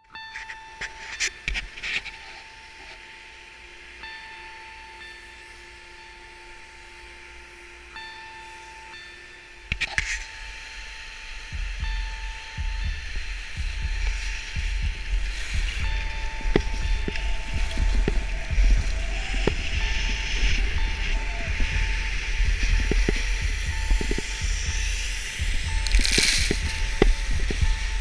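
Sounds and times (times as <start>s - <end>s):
steady hiss: 0.0s - 28.0s
whining tone: 0.0s - 28.0s
wind rumbling on microphone: 9.6s - 28.0s.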